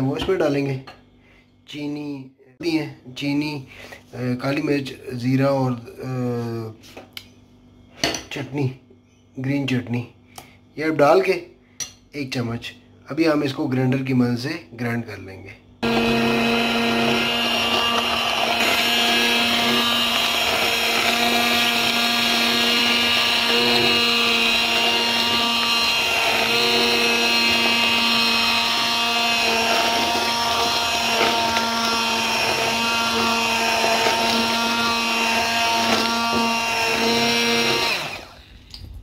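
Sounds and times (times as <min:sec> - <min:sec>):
immersion blender motor whine: 0:15.8 - 0:38.7.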